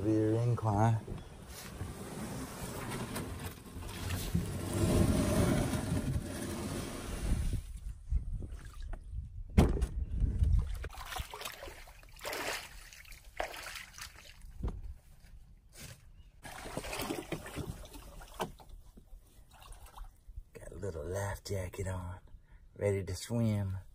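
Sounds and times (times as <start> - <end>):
water sloshing around a boat: 10.6 - 14.6, 16.4 - 20.4.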